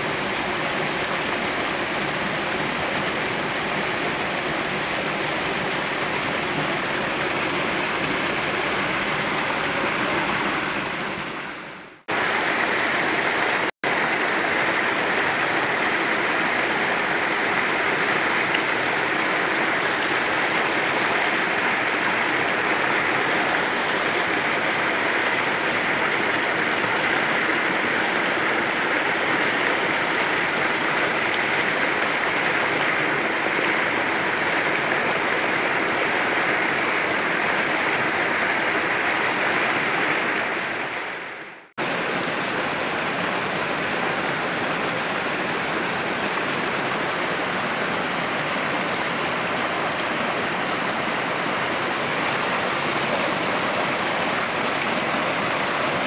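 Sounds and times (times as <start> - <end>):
stream splashing over boulders: 0.0 - 56.0.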